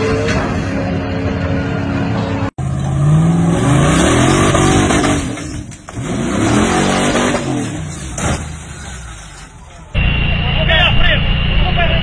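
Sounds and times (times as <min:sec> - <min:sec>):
off-road vehicle engine revving: 0:00.0 - 0:09.4.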